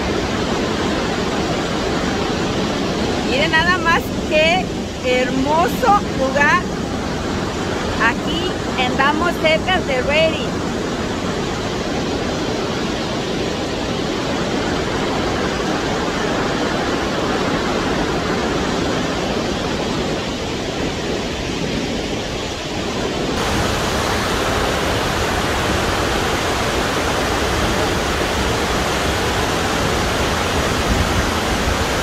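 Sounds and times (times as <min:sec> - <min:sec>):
waterfall rushing: 0:00.0 - 0:32.0.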